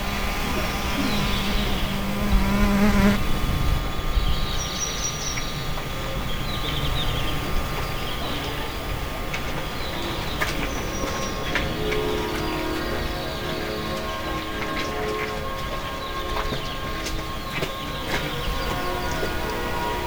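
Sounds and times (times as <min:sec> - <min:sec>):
fly buzzing: 0:00.0 - 0:03.3
forest ambience: 0:00.0 - 0:20.0.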